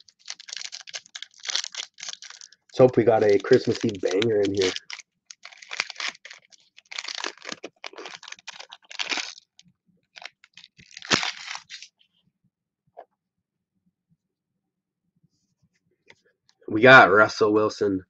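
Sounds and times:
foil wrapper crinkling and tearing: 0:00.0 - 0:11.9.

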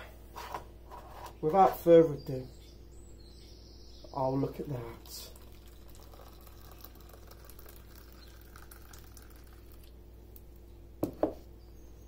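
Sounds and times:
coffee trickling into mug: 0:04.4 - 0:10.0
pot knocking on bench: 0:11.0 - 0:11.4.

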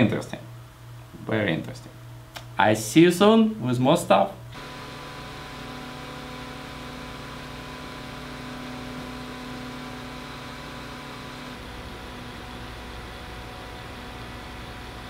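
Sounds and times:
computer fan running: 0:00.0 - 0:15.0.

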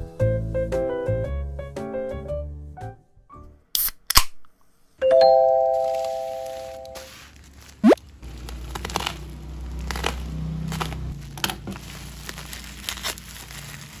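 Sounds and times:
packaging crinkling: 0:05.7 - 0:14.0.

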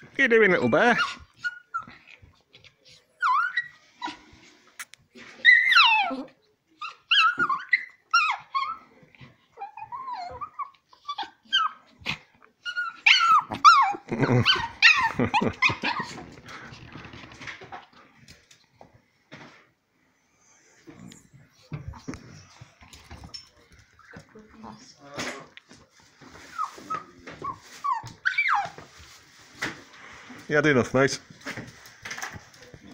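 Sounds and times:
dog whining and yipping: 0:00.8 - 0:02.0, 0:03.2 - 0:04.2, 0:05.3 - 0:12.0, 0:12.6 - 0:16.3, 0:26.5 - 0:28.8.

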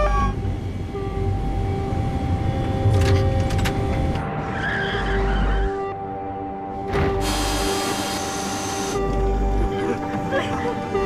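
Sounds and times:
tire screech: 0:04.3 - 0:06.0.

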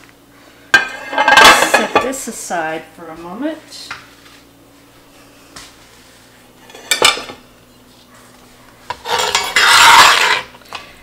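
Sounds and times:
metal spoon scraping in pot: 0:09.0 - 0:10.6.

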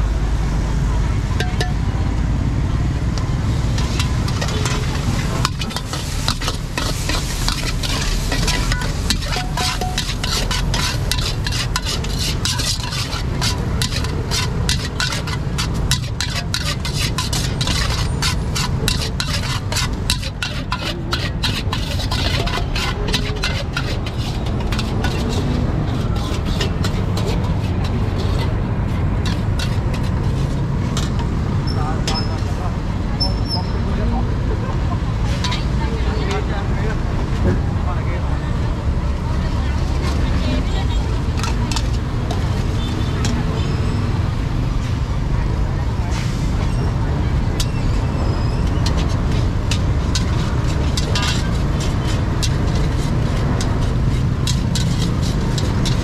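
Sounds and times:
metal utensils scraping woks: 0:01.4 - 0:01.8, 0:02.9 - 0:32.5, 0:34.8 - 0:36.4, 0:39.5 - 0:45.0, 0:46.1 - 0:56.0
food sizzling: 0:03.4 - 0:25.5.

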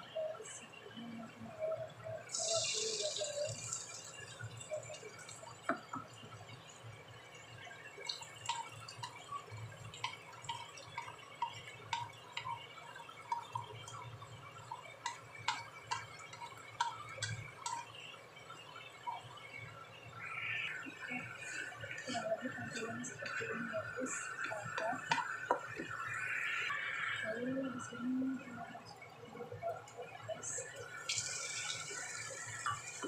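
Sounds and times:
eggs frying in oil: 0:02.2 - 0:27.2, 0:29.8 - 0:33.0
oil popping and crackling: 0:31.0 - 0:33.0.

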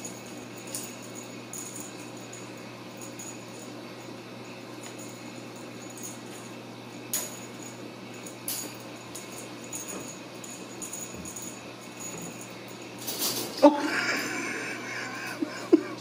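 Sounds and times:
steady low hum: 0:00.0 - 0:16.0
kittens scrabbling: 0:13.0 - 0:14.3.

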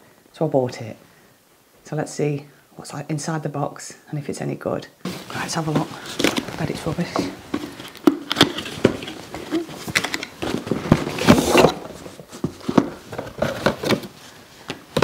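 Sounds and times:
packaging rustling and scraping: 0:05.1 - 0:15.0
knocks and clicks of box: 0:07.2 - 0:15.0.

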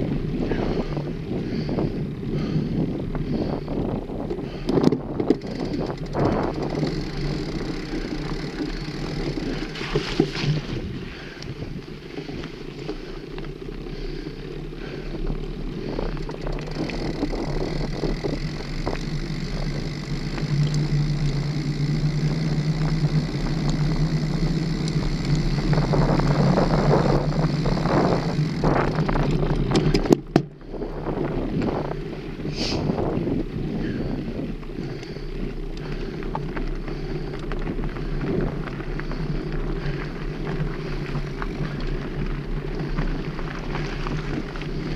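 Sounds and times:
wind on microphone: 0:00.0 - 0:12.5, 0:15.7 - 0:35.2
bike rattles and knocks: 0:00.0 - 0:44.9
bike tyres rumbling on dirt: 0:00.0 - 0:44.9
low steady hum: 0:00.0 - 0:44.9.

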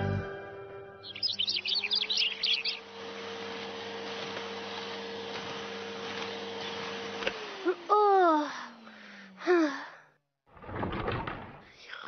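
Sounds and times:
rapid bird chirps: 0:01.0 - 0:02.8
vacuum cleaner motor humming: 0:01.1 - 0:09.6.

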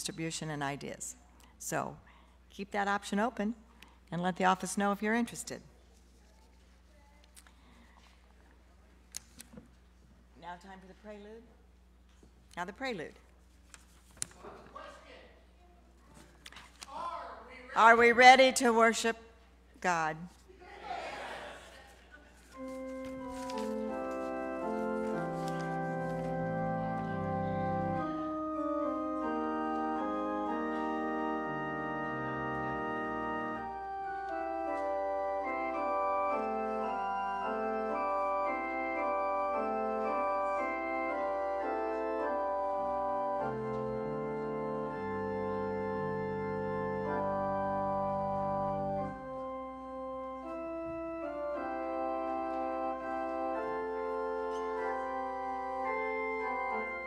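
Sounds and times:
organ playing sustained chords: 0:22.5 - 0:57.0
deep bass organ note: 0:23.7 - 0:52.2.

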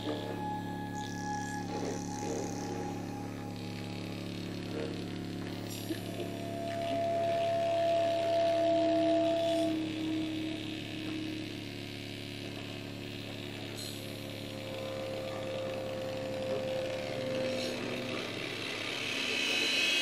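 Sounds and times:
steady low hum: 0:00.0 - 0:20.0
synthesizer drone: 0:00.0 - 0:20.0
hiss: 0:17.6 - 0:20.0.

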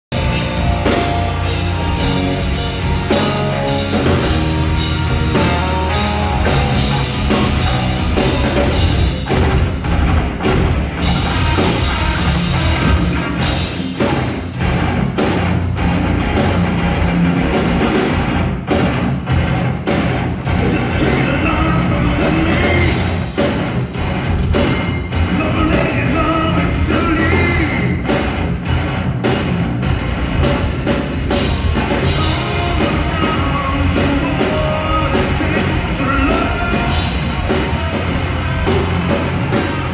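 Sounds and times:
heavy metal band playing live: 0:00.1 - 0:39.9
person singing: 0:20.6 - 0:23.1, 0:25.3 - 0:28.0, 0:32.0 - 0:37.6.

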